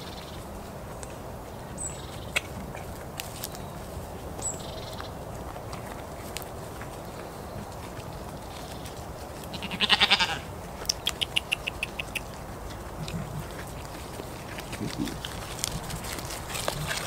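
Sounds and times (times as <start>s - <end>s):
goat bleating: 9.5s - 10.5s
sharp high ticks: 10.8s - 12.4s.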